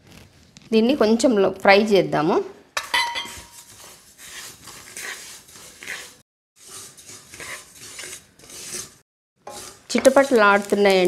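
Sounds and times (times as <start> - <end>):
spatula scraping frying pan: 2.8 - 11.0
seeds rustling and crackling: 9.7 - 11.0.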